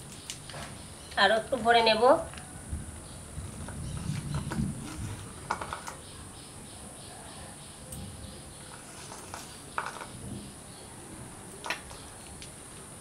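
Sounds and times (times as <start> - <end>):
faint insect chirping: 0.0 - 13.0.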